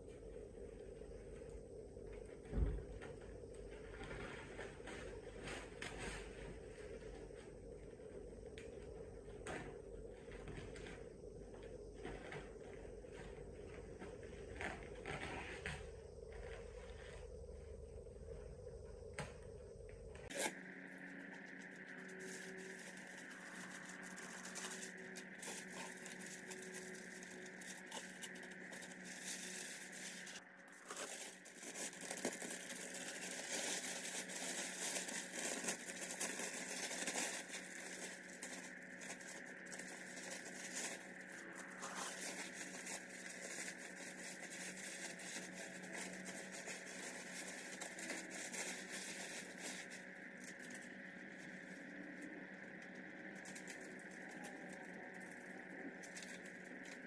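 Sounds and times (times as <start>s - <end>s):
plastic sheeting crinkling: 21.4s - 51.8s.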